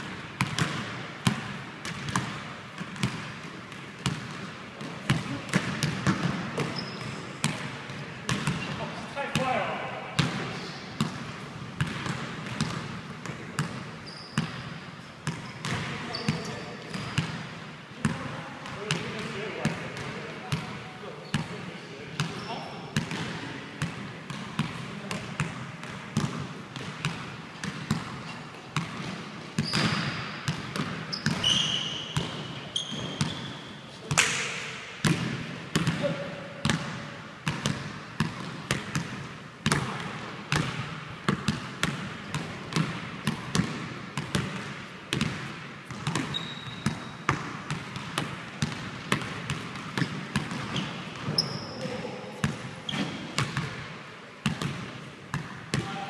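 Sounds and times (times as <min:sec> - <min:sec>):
basketball bouncing on hardwood: 0:00.4 - 0:03.3, 0:36.6 - 0:51.6
sneakers squeaking on floor: 0:04.8 - 0:07.7, 0:08.3 - 0:11.1, 0:13.6 - 0:17.4, 0:20.5 - 0:21.6, 0:22.2 - 0:23.3, 0:27.6 - 0:34.8, 0:45.9 - 0:47.5, 0:48.7 - 0:53.7.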